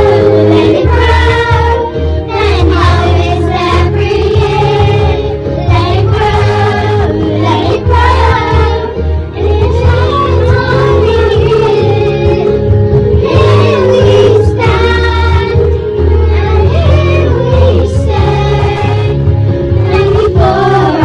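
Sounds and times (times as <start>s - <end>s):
children singing in unison: 0.0s - 19.2s, 19.8s - 21.0s
instrumental accompaniment with bass: 0.0s - 21.0s.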